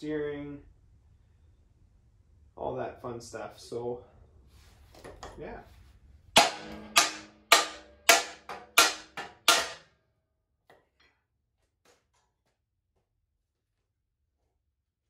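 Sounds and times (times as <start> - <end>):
hammer striking steel frame: 6.3 - 9.9.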